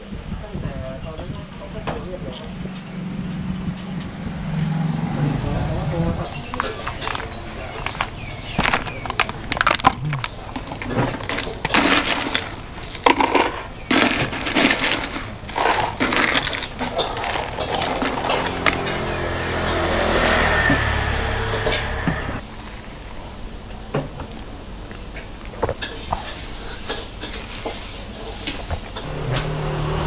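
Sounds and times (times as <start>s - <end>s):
low rumble: 1.2s - 10.8s
ice cubes clattering and crunching: 6.3s - 21.8s.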